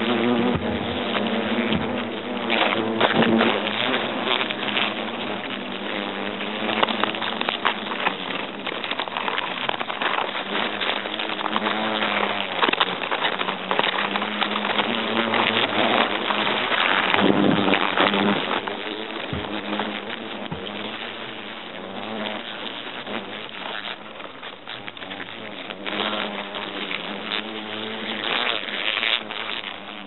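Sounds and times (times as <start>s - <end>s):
hornets buzzing: 0.0s - 30.0s
small crackles: 0.0s - 30.0s.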